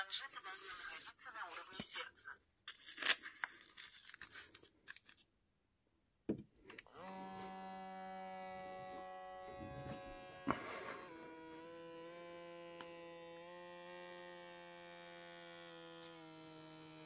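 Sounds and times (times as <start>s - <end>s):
pump motor humming: 6.9s - 17.0s.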